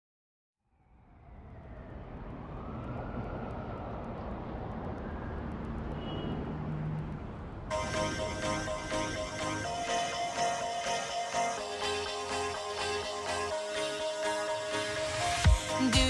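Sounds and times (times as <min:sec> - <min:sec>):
dense rushing rumbling noise: 0:00.9 - 0:08.2
pop music with a beat: 0:07.7 - 0:16.0.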